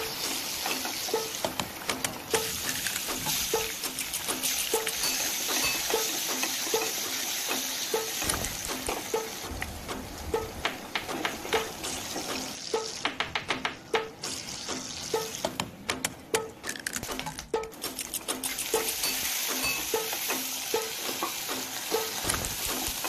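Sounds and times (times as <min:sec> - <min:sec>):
oil sizzling in a pan: 0:02.4 - 0:09.4, 0:18.7 - 0:23.0.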